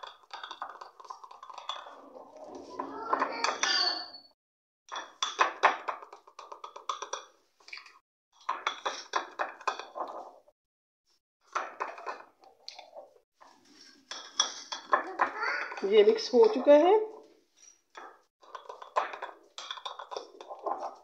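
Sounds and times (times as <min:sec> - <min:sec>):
spoon clinking against glass bowl: 0:00.1 - 0:02.0.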